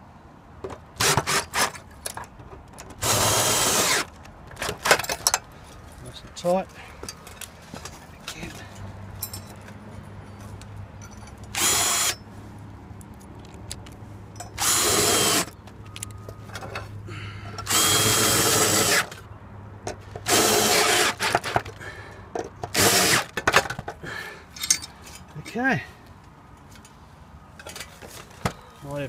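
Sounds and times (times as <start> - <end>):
cordless drill driving screws: 3.0 - 4.1, 11.6 - 12.2, 14.6 - 15.5, 17.6 - 19.2, 20.2 - 21.6, 22.7 - 23.3.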